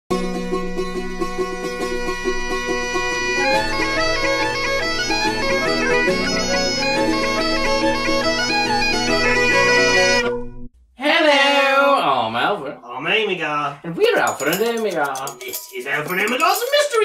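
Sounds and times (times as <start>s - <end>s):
bagpipe music: 1.2s - 10.4s.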